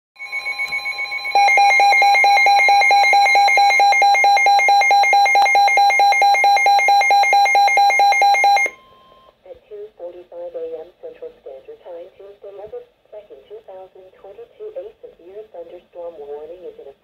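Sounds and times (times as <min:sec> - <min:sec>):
steady high alarm tone: 0:00.2 - 0:09.2
rapid electronic alarm beeps: 0:00.2 - 0:09.3.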